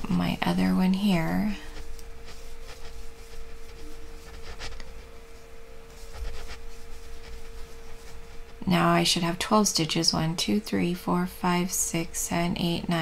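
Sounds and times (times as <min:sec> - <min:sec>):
crochet hook rustling yarn: 0:00.0 - 0:08.9.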